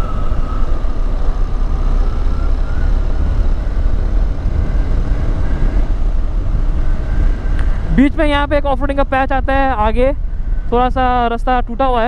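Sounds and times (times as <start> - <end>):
motorcycle engine running: 0.0 - 8.4
wind rumble on microphone: 0.0 - 12.0.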